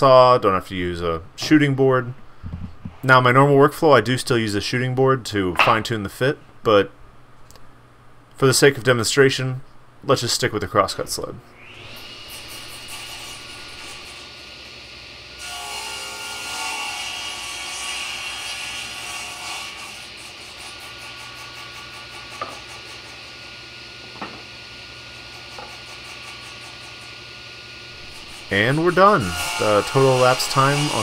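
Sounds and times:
table saw running: 11.6 - 31.0
saw blade cutting board: 11.7 - 14.4, 15.4 - 23.5, 24.1 - 27.2, 28.0 - 31.0.

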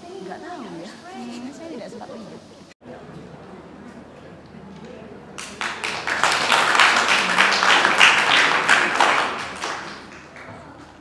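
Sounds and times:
people clapping: 5.3 - 11.0.

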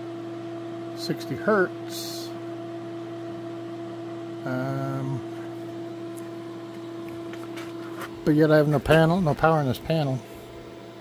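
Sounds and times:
inverter electrical hum: 0.0 - 11.0.

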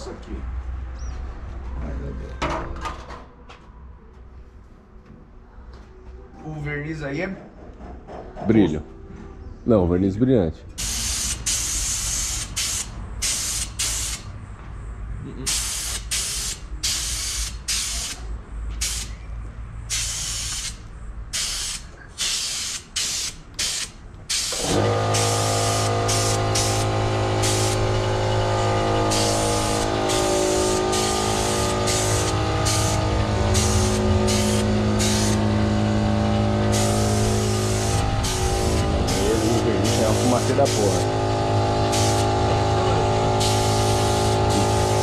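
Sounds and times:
hissing spray bursts: 10.8 - 14.3, 15.5 - 19.2, 19.9 - 45.0
steady machine hum: 24.6 - 45.0.

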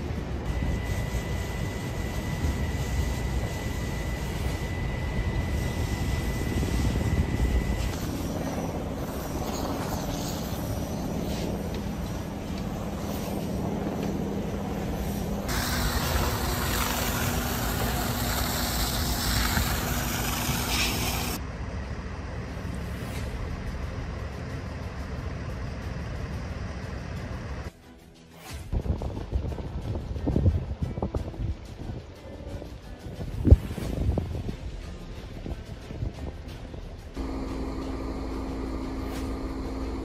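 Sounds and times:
engines running: 0.0 - 27.8, 29.2 - 40.0
thin high whine: 0.0 - 28.9, 36.7 - 40.0
fire hose spraying water: 0.7 - 13.8, 14.4 - 21.4.

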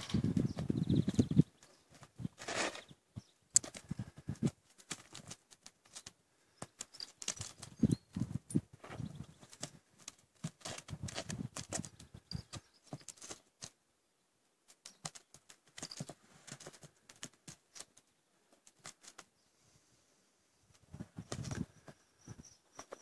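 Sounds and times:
hooves on stony ground: 0.0 - 13.5, 14.9 - 17.9.

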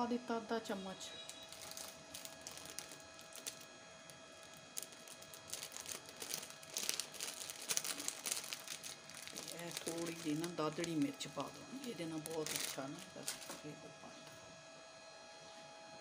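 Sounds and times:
faint steady hum: 0.0 - 16.0
plastic packet crinkling: 1.2 - 13.8.

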